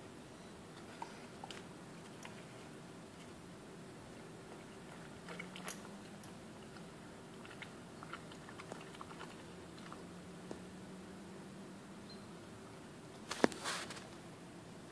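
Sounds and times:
faint steady hum: 0.0 - 14.9
dog chewing and gnawing: 4.7 - 10.1.

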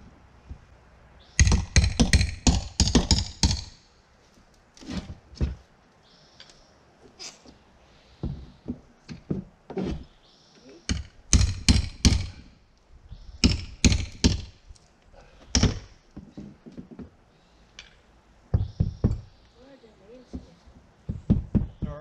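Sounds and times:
hammer blows on plywood: 10.9 - 12.5, 18.5 - 19.3, 20.3 - 22.0.

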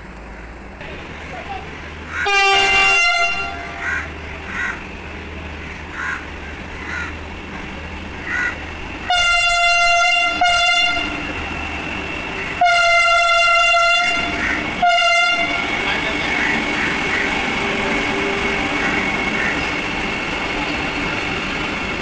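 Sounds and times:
train rumbling: 0.0 - 22.0
train horn blasts: 2.1 - 4.3, 9.0 - 11.6, 12.4 - 19.8.

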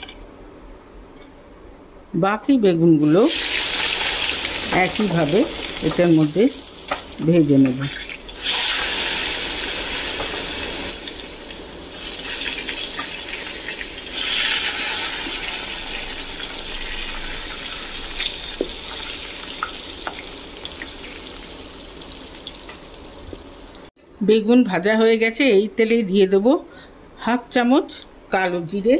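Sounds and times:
eggplant sizzling in hot oil: 3.0 - 23.9
oil popping and crackling: 7.9 - 23.9.

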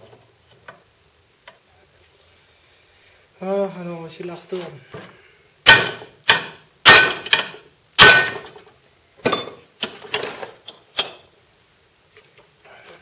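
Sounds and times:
metallic clanks on steel rod: 5.7 - 8.7.

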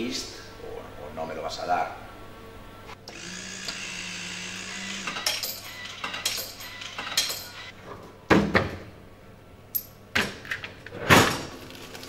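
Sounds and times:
metallic clinks and clatters: 5.1 - 7.7.

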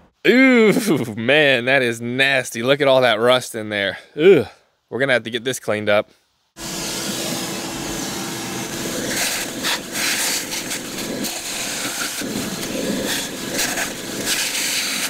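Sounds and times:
shop vacuum running: 6.6 - 15.0
debris rattling in hose: 8.6 - 15.0.

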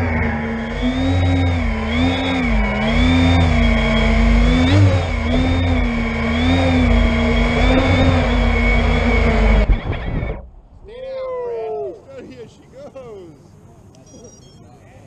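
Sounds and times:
drone motors whining: 0.0 - 11.9
low rumble: 0.0 - 12.2.

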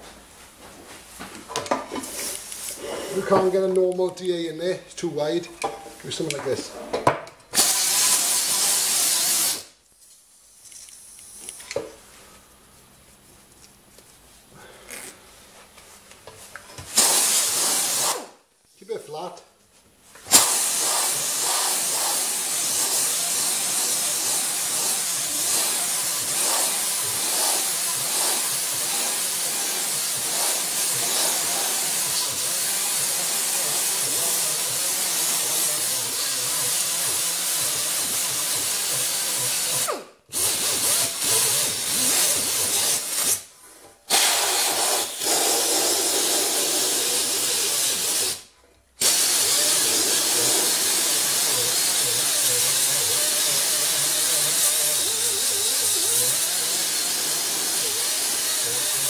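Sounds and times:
air sander hissing: 7.6 - 9.8, 16.8 - 18.4, 20.2 - 59.0.

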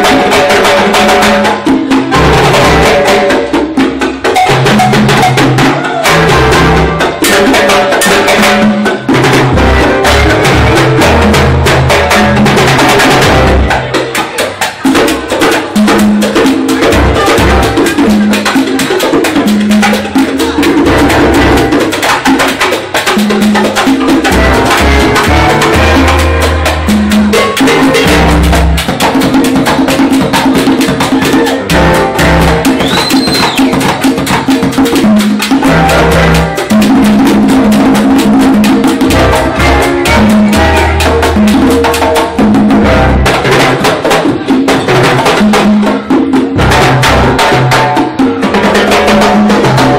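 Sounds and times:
congas and timbales: 0.0 - 49.9
latin jazz band playing: 0.0 - 49.9
walking bass line: 24.2 - 29.0, 31.2 - 33.5, 35.6 - 38.2, 39.0 - 43.6.

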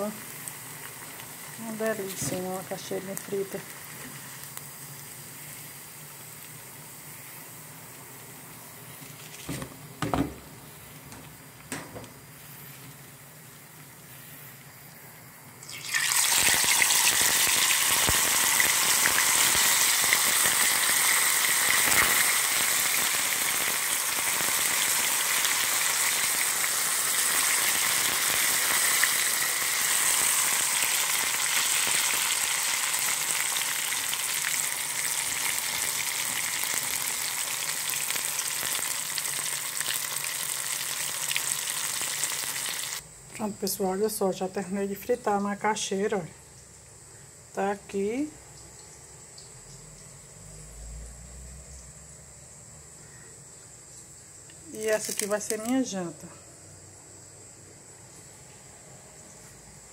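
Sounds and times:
food sizzling in hot oil: 0.0 - 10.9, 15.6 - 43.0, 54.4 - 55.9
oil hissing: 0.0 - 14.7, 15.6 - 43.0.

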